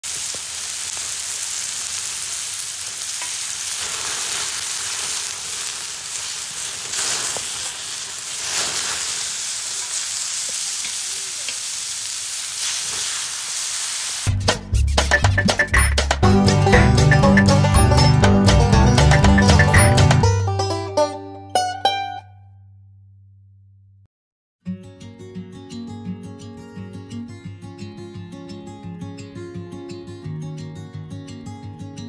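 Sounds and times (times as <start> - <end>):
food sizzling in a pan: 0.0 - 14.4.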